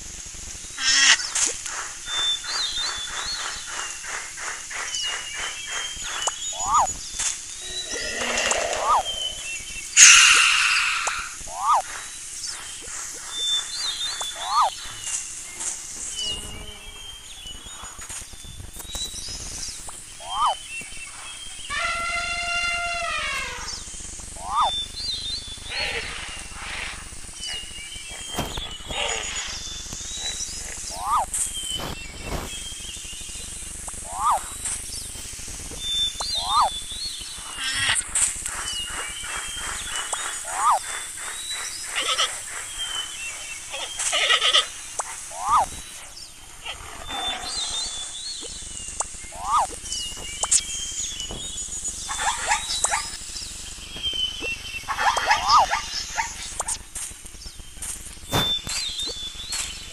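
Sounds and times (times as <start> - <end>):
rapid pulsing animal calls: 0.6 - 16.8, 19.4 - 57.0
bird chirps: 0.6 - 59.9
high whistled chirps: 0.6 - 59.9
rising-and-falling cries: 7.6 - 11.8, 21.7 - 24.7.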